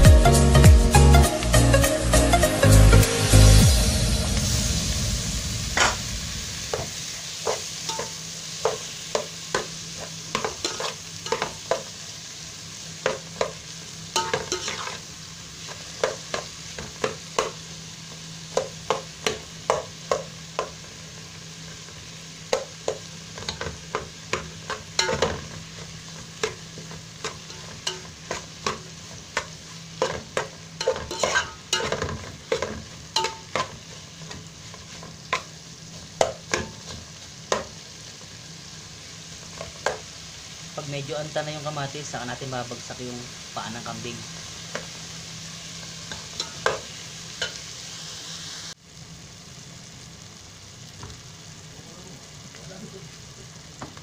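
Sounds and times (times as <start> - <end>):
faint sizzle: 0.0 - 54.0
spoon scraping metal pot: 30.8 - 33.7.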